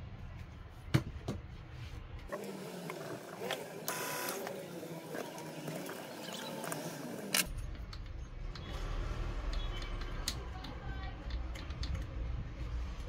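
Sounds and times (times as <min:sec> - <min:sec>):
steady machine noise: 0:02.3 - 0:07.5.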